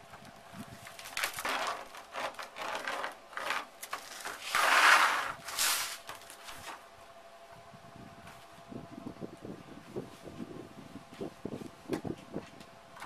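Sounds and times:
tools scraping fiberglass sheet: 0:01.1 - 0:06.8.

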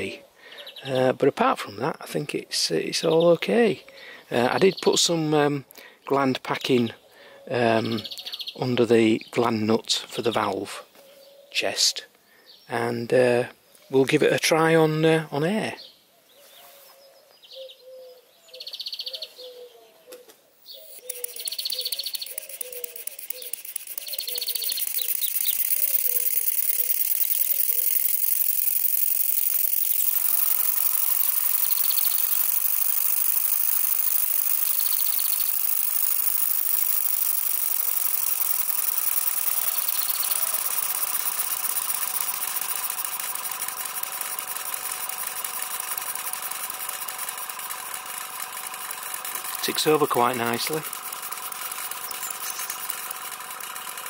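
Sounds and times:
model steam engine running: 0:20.9 - 0:54.0.

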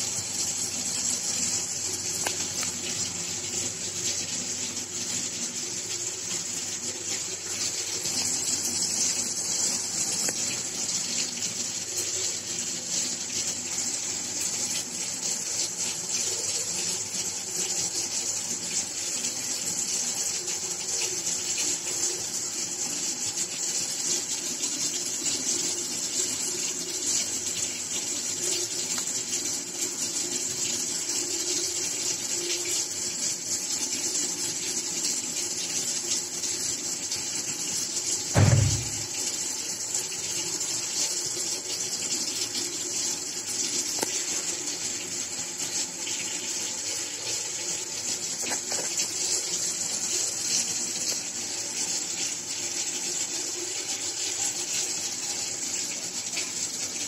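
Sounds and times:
short low thump: 0:38.4 - 0:39.1.

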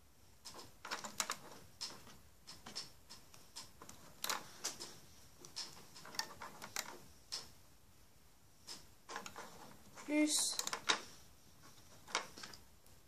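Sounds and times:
rubber bands clicking on plastic pegs: 0:00.4 - 0:07.6, 0:08.6 - 0:11.1.

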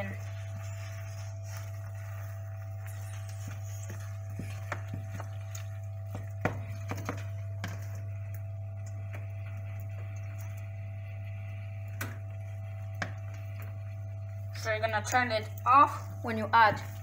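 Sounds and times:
spoon stirring macaroni: 0:00.0 - 0:10.6
steady low hum: 0:00.0 - 0:17.0.

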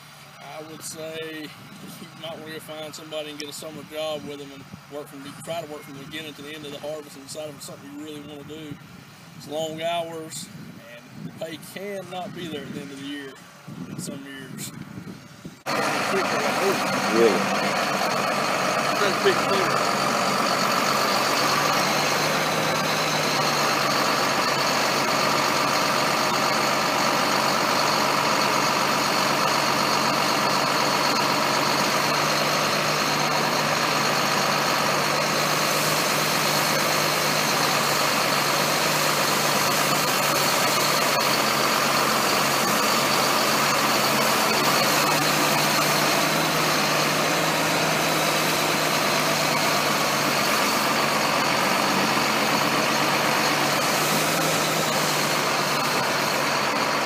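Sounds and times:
engine drone with high whine: 0:14.7 - 0:57.0.

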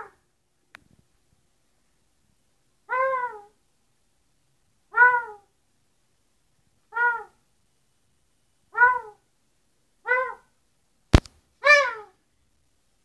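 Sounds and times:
parrot mimicking dog bark: 0:00.0 - 0:00.2, 0:02.9 - 0:03.6, 0:04.9 - 0:05.5, 0:06.9 - 0:07.4, 0:08.7 - 0:09.2, 0:10.0 - 0:10.5, 0:11.6 - 0:12.2.

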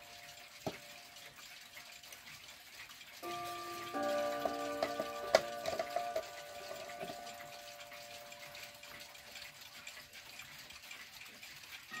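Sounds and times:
mantel clock chime ringing: 0:03.2 - 0:09.6.

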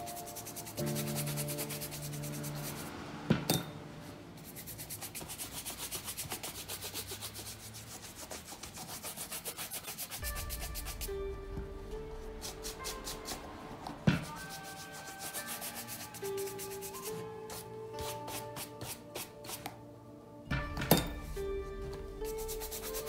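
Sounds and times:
brush scrubbing leather shoe: 0:00.0 - 0:02.9, 0:04.4 - 0:11.1, 0:12.4 - 0:19.7, 0:22.2 - 0:23.0.

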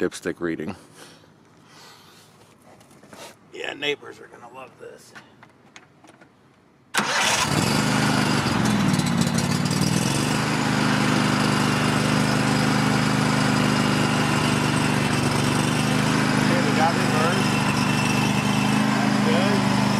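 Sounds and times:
tractor engine starting and running: 0:06.9 - 0:19.9.

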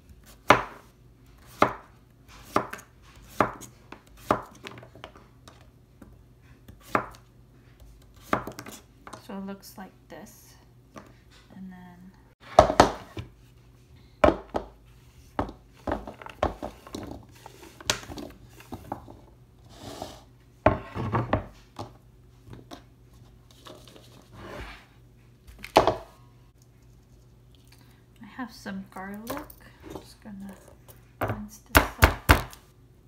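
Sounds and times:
knife scraping cutting board: 0:19.6 - 0:21.0, 0:23.6 - 0:24.9.

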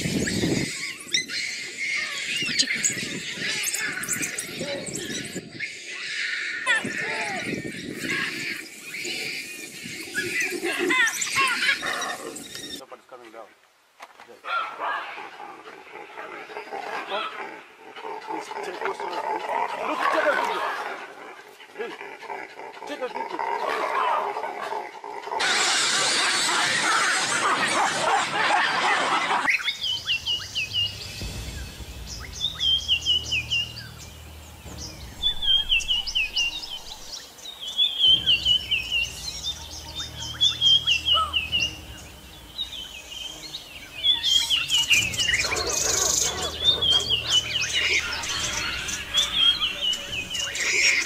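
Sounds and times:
bird chirping: 0:00.0 - 0:06.0, 0:07.4 - 0:12.8, 0:29.5 - 0:51.0
loud rushing noise: 0:30.1 - 0:37.4.

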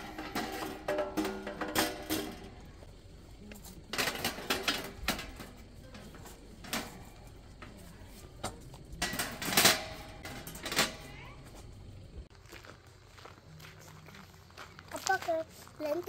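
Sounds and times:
metal panels clanking and scraping: 0:00.0 - 0:12.2.

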